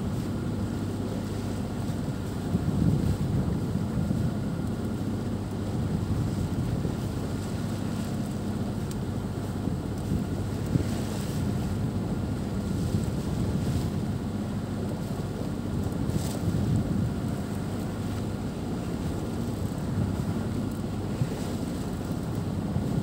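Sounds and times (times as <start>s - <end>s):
sea washing past hull: 0.0s - 23.0s
wind buffeting microphone: 2.0s - 23.0s.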